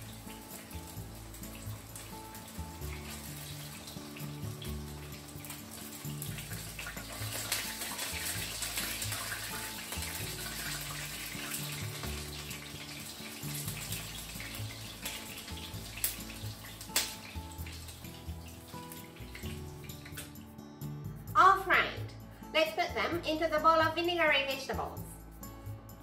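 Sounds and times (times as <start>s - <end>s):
oil sizzling in frying pan: 0.0s - 20.3s
background music: 0.0s - 26.0s.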